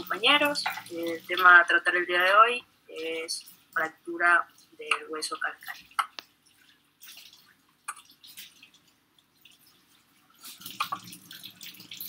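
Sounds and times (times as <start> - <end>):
faint clicks and ticks: 4.5 - 9.8.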